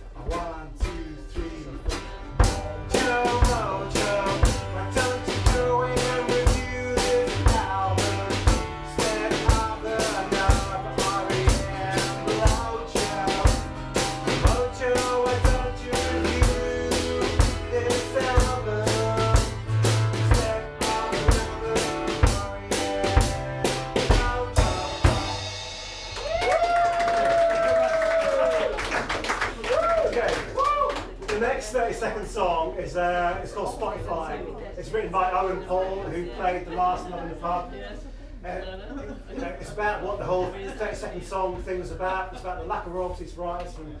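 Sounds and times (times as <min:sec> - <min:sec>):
rock drum beat: 0:00.0 - 0:27.6
guitar: 0:00.0 - 0:28.2.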